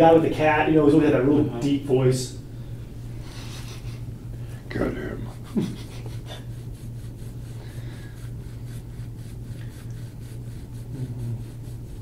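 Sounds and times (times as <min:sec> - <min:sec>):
steady low hum: 0:00.0 - 0:12.0
scraping tool on oiled skin: 0:05.6 - 0:12.0.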